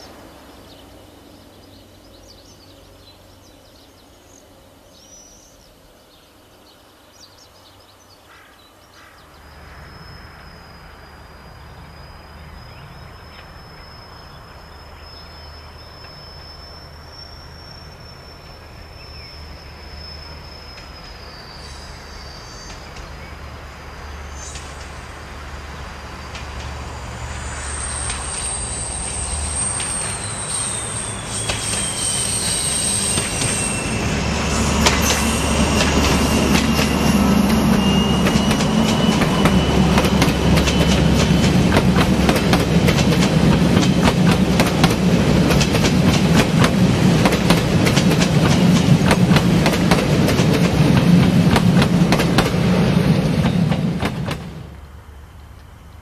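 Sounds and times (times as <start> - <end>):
high insect chirp: 8.8 - 53.8
diesel locomotive engine: 8.9 - 56.0
wheel flange squeal: 9.4 - 25.4, 26.0 - 54.4
wheels clicking over rail joints: 34.8 - 52.6.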